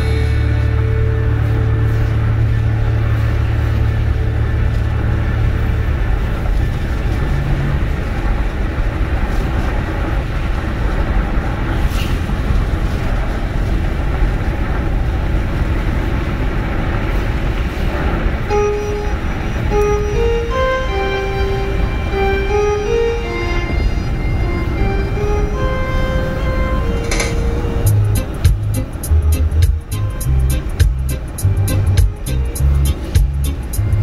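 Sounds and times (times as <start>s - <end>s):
music track: 0.0s - 8.2s, 18.5s - 34.0s
car road and engine rumble: 0.0s - 34.0s.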